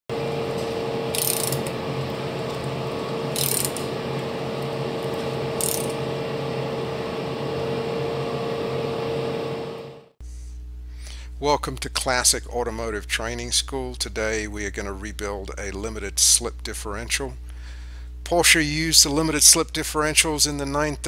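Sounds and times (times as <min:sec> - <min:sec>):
steady hum: 0:00.1 - 0:21.0
engine ratcheting gear noise: 0:01.1 - 0:01.8, 0:02.4 - 0:04.0, 0:04.6 - 0:06.0.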